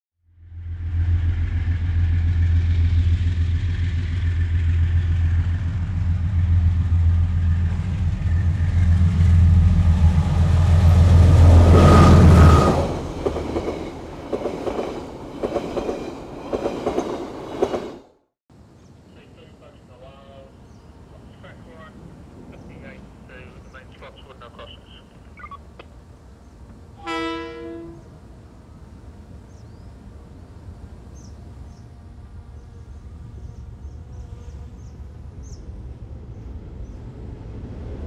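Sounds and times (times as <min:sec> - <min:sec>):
diesel locomotive engine drone: 0:00.2 - 0:38.0
train wheel clicks on rails: 0:13.2 - 0:17.9.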